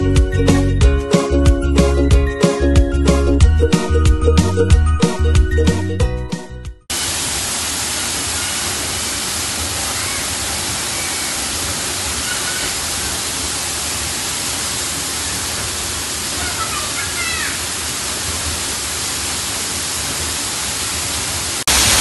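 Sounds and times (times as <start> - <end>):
upbeat music: 0.0 - 6.9
waterfall rushing into pool: 6.9 - 22.0.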